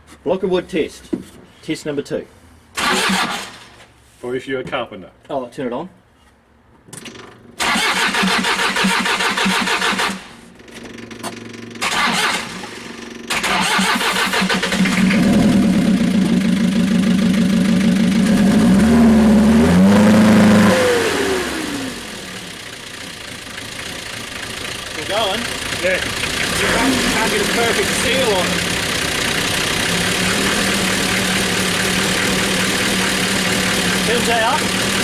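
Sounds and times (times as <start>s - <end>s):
diesel engine starter cranking: 2.8s - 3.7s, 6.9s - 16.3s
diesel van engine running: 14.2s - 35.0s.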